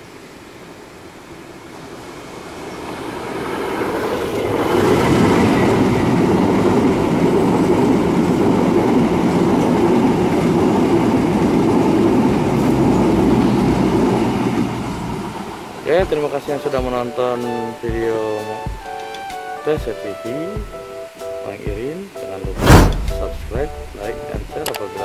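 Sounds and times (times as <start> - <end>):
diesel locomotive passing: 0.5 - 16.7, 22.6 - 24.4
train wheels rolling over rails: 1.5 - 15.9, 22.5 - 24.4.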